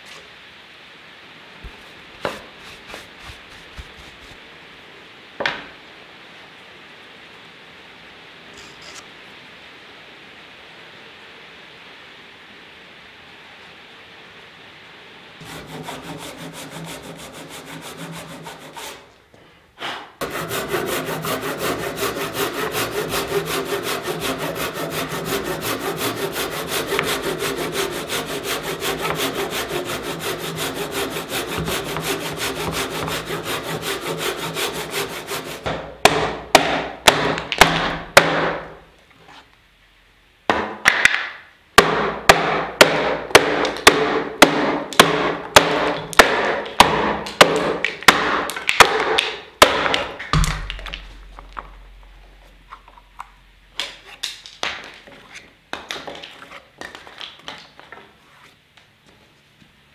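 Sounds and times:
saw rasping through timber: 0:15.4 - 0:19.1, 0:20.2 - 0:35.7
hatchet chopping wood: 0:20.2 - 0:38.7, 0:40.5 - 0:51.7.

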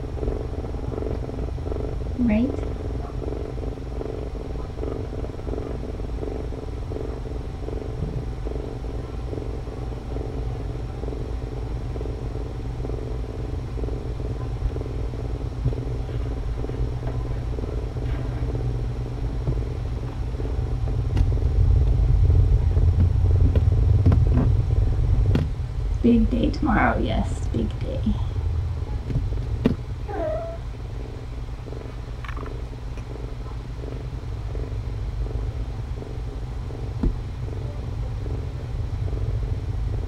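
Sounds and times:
cat purring: 0:00.0 - 0:40.0
deeper rumble: 0:00.0 - 0:40.0.

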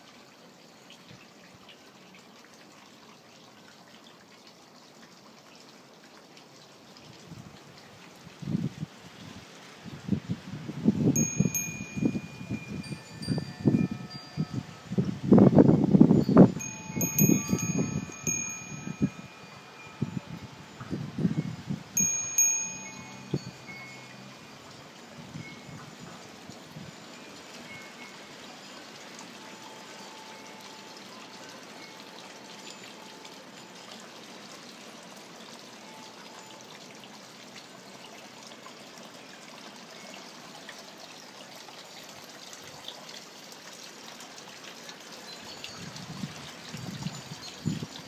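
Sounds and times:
trickling rushing water: 0:00.0 - 0:48.0
wind bell ringing: 0:11.0 - 0:34.7, 0:35.7 - 0:38.1, 0:45.2 - 0:48.0.

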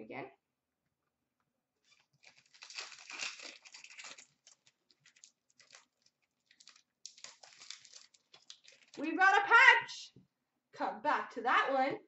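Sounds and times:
plastic wrapper crinkling: 0:01.8 - 0:09.2.

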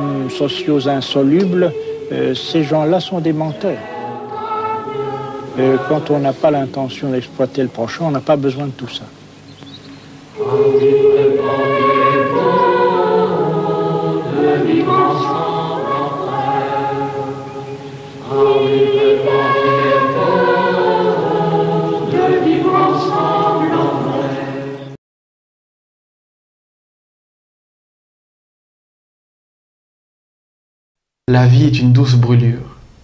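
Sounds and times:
mixed choir singing: 0:00.0 - 0:08.6, 0:10.3 - 0:25.0.

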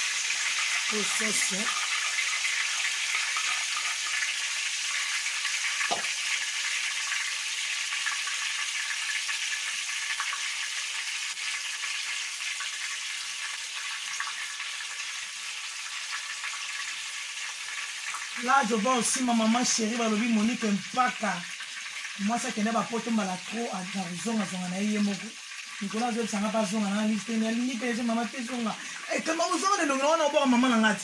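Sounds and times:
vegetables sizzling in oil: 0:00.0 - 0:31.0
spoon knocking on pan: 0:05.9 - 0:06.1.

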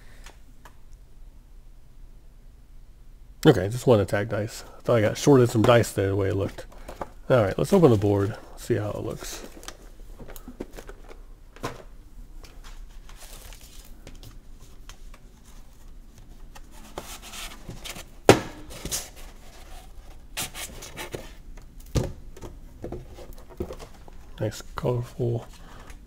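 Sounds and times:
cardboard rustling and scraping: 0:14.6 - 0:21.4.

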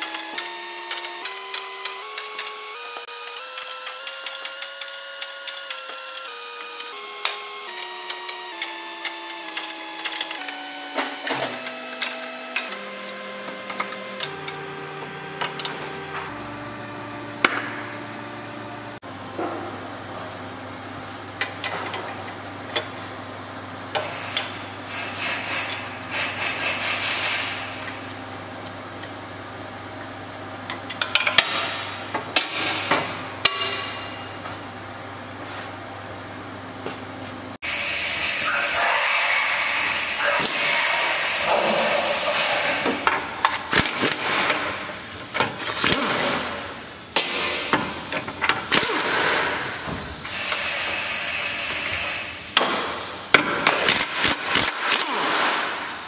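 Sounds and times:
hissing rattling tool noise: 0:23.9 - 0:28.1, 0:37.6 - 0:56.0.

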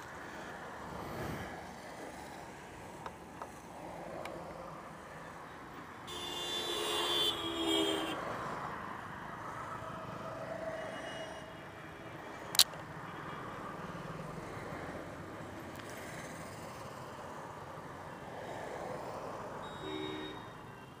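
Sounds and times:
road traffic: 0:00.0 - 0:21.0
vehicle horn: 0:06.1 - 0:08.2, 0:19.6 - 0:21.0.

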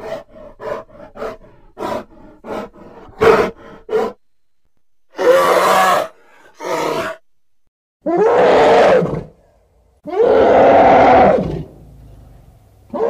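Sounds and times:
creature roar: 0:08.1 - 0:09.3, 0:10.1 - 0:11.7.

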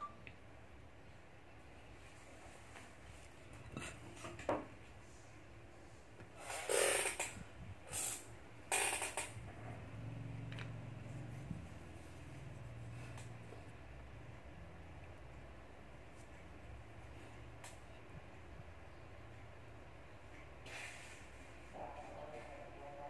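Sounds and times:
faint low hum: 0:07.1 - 0:20.6.

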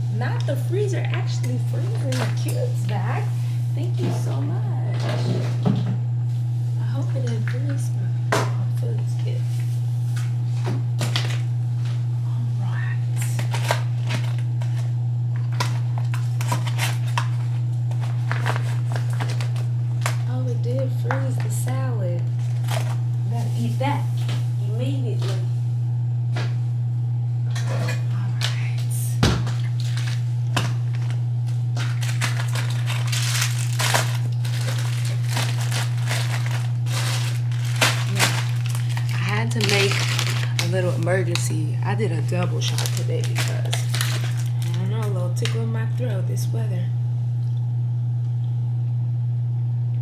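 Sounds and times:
low hum: 0:00.0 - 0:50.0
plastic bag crinkling: 0:13.4 - 0:14.8, 0:15.4 - 0:21.5, 0:22.2 - 0:23.8, 0:29.4 - 0:45.6
wrappers rustling: 0:15.5 - 0:20.3, 0:29.8 - 0:41.6, 0:42.3 - 0:45.1.

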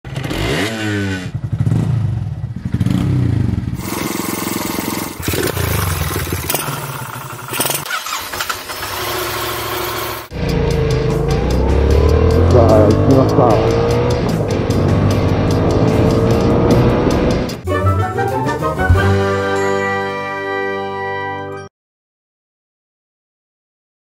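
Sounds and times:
motorcycle engines revving: 0:00.1 - 0:17.6.

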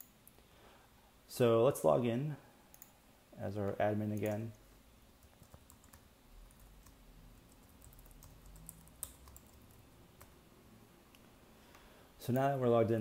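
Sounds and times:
keyboard keystrokes clicking: 0:05.2 - 0:10.3.

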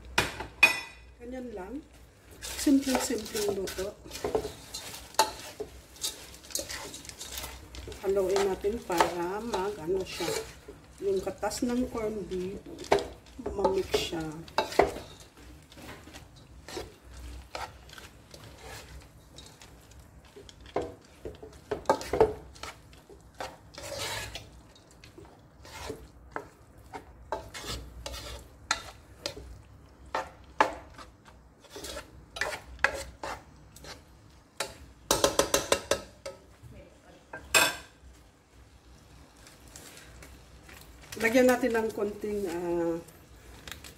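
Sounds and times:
spatula scraping a pan: 0:02.2 - 0:36.4.

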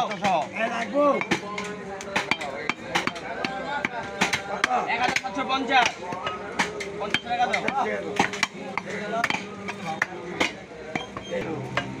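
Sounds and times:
voices talking: 0:00.0 - 0:12.0
cleaver chopping on wooden block: 0:02.1 - 0:12.0.

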